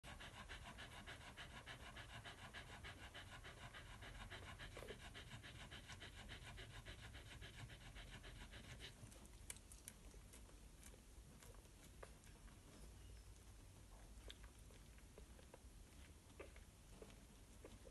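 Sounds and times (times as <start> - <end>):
dog panting: 0.0 - 9.4.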